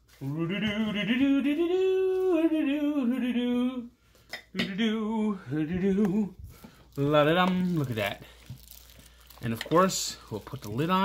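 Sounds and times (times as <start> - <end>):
man singing wordless tune: 0.0 - 8.3.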